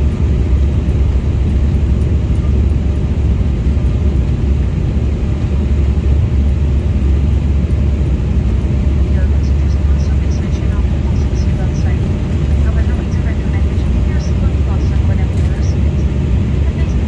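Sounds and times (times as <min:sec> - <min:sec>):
jet engine low rumble: 0:00.0 - 0:17.0.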